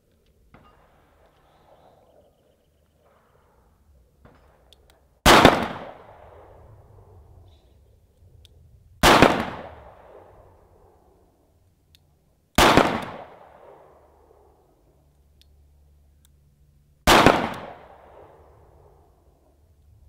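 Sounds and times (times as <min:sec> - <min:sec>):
handgun shots with echo: 0:17.1 - 0:17.8.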